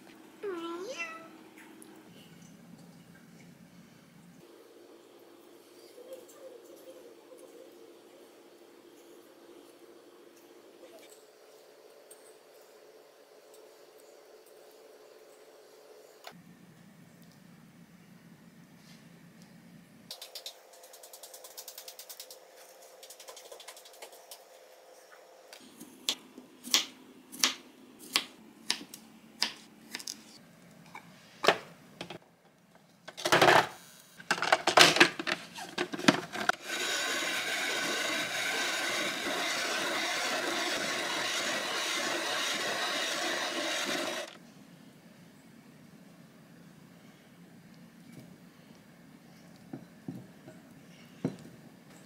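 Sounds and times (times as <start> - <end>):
ice shaver running: 36.0 - 44.4.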